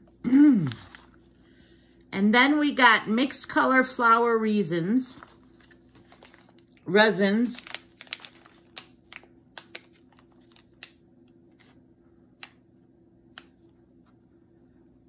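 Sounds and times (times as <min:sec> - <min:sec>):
plastic packet crinkling: 0:05.1 - 0:11.0.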